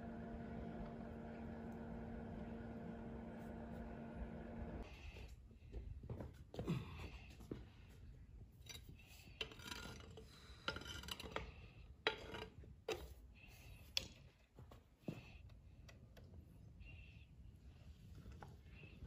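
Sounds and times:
metal rods scraping crucible: 8.6 - 13.1.

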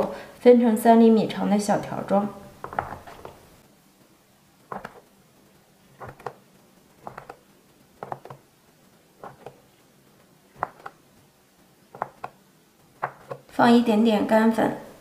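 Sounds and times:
dough scraper tapping wooden board: 13.0 - 13.5.

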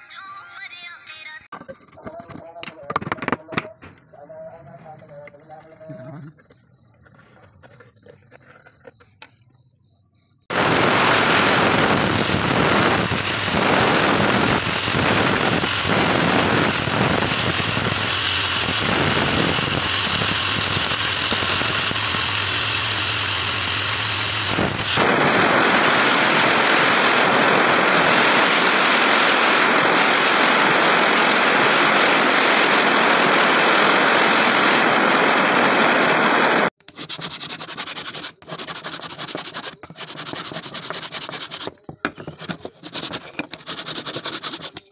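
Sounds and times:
electric saw cutting wood: 10.5 - 36.8.

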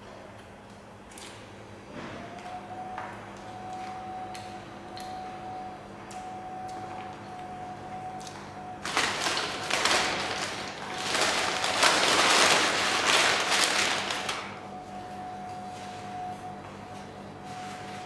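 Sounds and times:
paper bag rustling: 8.8 - 14.6.

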